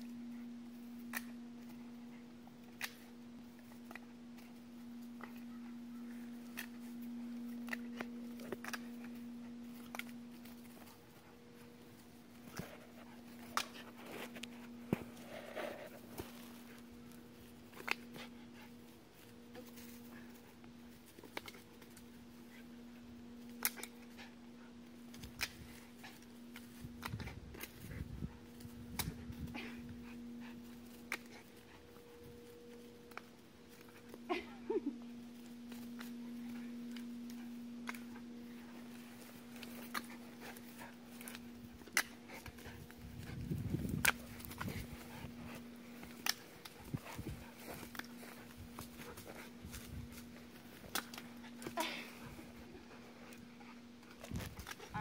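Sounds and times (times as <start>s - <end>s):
steady low hum: 0.0s - 55.0s
sticks clicking and snapping: 2.6s - 4.5s, 6.4s - 11.0s, 17.7s - 18.3s, 21.1s - 22.1s, 23.4s - 24.2s, 25.0s - 28.0s, 28.6s - 30.1s, 39.3s - 43.3s, 43.9s - 45.0s, 46.0s - 50.2s, 50.8s - 51.7s.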